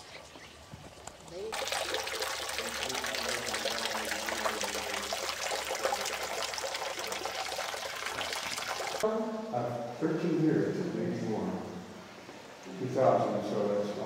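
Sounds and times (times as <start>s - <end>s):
running splashing water: 0.0s - 9.0s.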